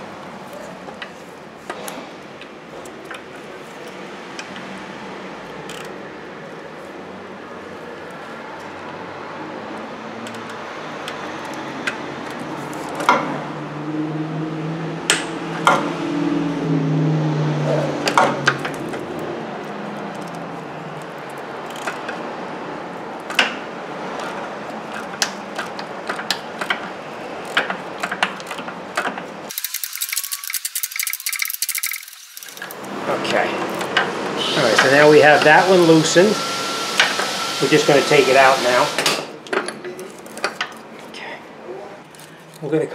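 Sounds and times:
ratchet clicking: 5.5 - 6.0, 10.2 - 13.1, 20.0 - 20.4, 21.0 - 22.2, 24.2 - 32.9.

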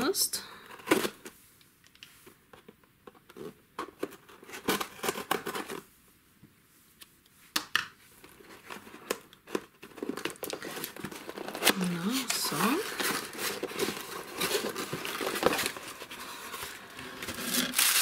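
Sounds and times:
cardboard mailer rustling: 8.4 - 18.0.

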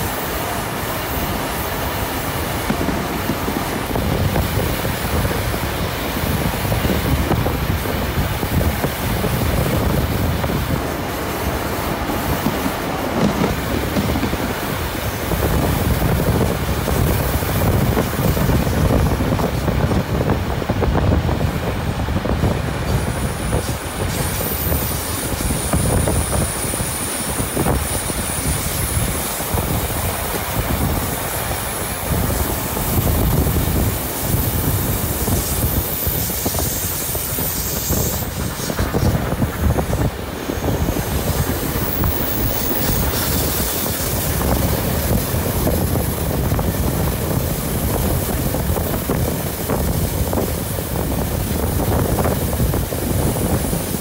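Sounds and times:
train carriages rumbling on track: 0.0 - 54.0
wheel flanges squealing on rails: 22.8 - 54.0.

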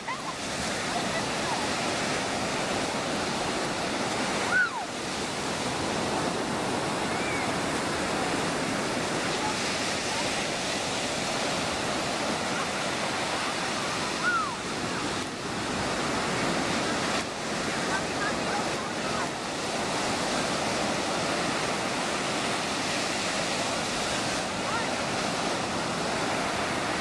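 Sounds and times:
ocean surf breaking on beach: 0.0 - 27.0
high cries falling in pitch: 4.5 - 4.9.

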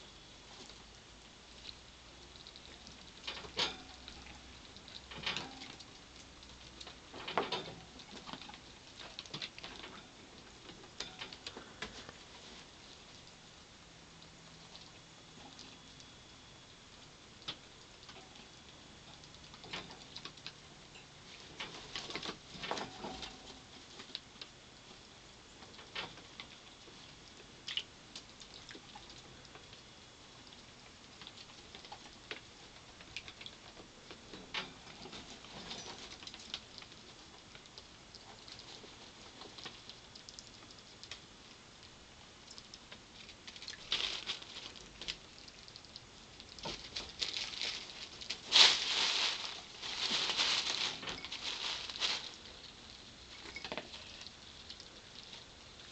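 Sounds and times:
rats eating with clicks: 0.0 - 55.9.

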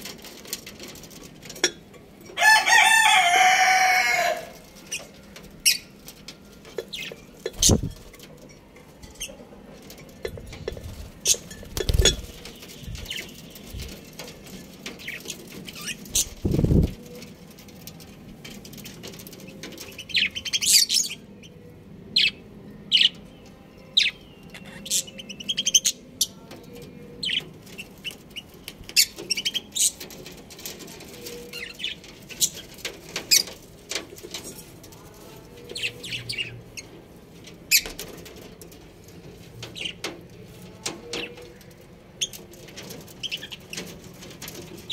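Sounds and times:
small birds chirping: 10.2 - 17.0, 18.6 - 33.6, 34.2 - 37.0, 41.0 - 43.9.

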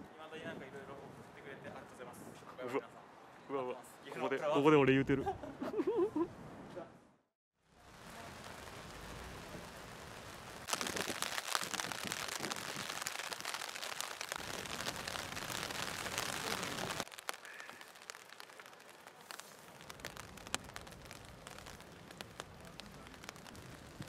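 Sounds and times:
rain pattering: 7.6 - 24.0.

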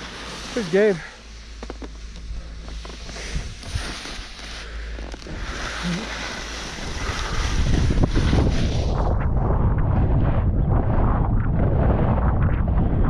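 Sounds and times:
skis sliding on snow: 0.0 - 9.3
wind rushing over microphone: 0.0 - 13.0.

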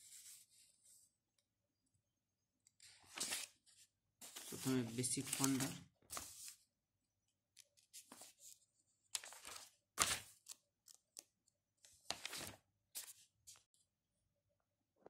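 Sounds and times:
book pages turning: 2.8 - 6.6, 7.7 - 11.3, 11.9 - 13.6.

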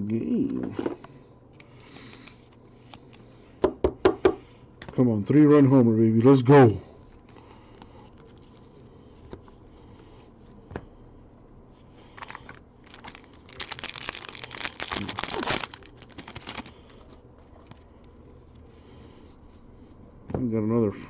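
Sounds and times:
foil wrapper tearing and crinkling: 12.2 - 17.8.

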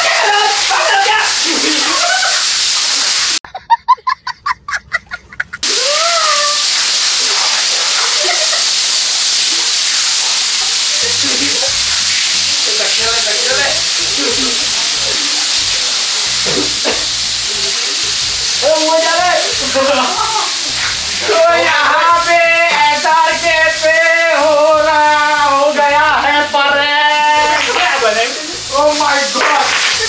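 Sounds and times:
people shouting: 0.0 - 2.5, 5.6 - 6.6
aerosol cans spraying: 0.0 - 3.4, 5.6 - 30.0
child laughing: 3.5 - 6.6, 7.6 - 8.8, 11.0 - 11.8.

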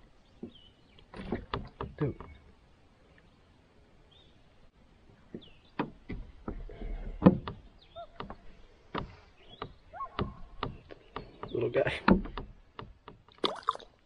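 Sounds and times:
hollow knocks on canoe hull: 5.3 - 13.4.

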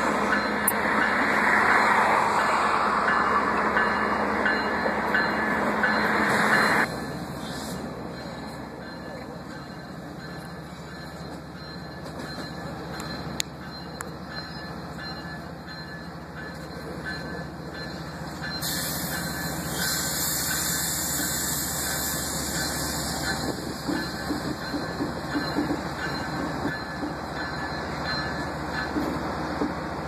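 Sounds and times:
loud air hiss: 18.6 - 23.2.

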